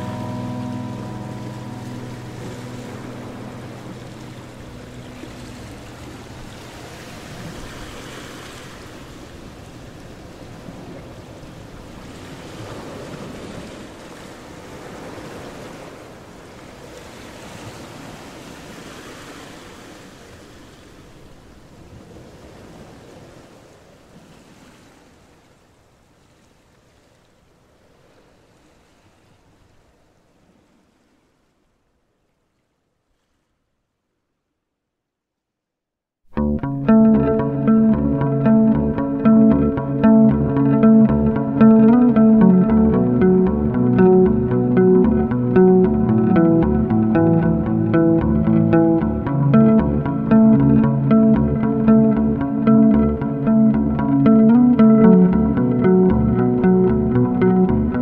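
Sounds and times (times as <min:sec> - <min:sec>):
low held music notes: 0:00.0 - 0:07.8, 0:36.3 - 0:58.0
surf-like rushing noise: 0:00.0 - 0:20.9.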